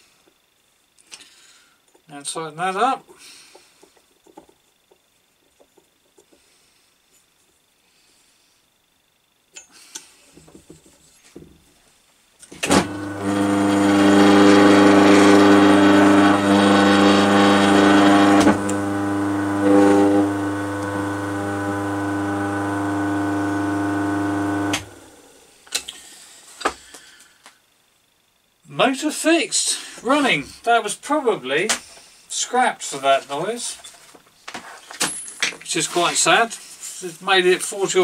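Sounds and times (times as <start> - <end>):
electric motor humming: 12.6 - 25.4.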